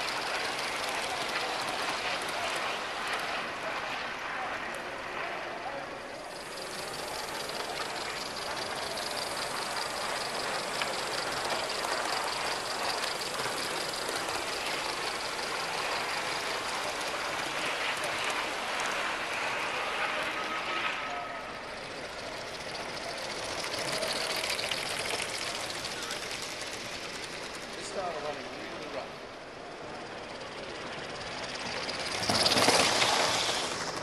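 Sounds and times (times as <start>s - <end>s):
steam exhaust rushing: 0.0s - 3.8s, 6.2s - 28.2s
wheels on rails: 0.0s - 34.0s.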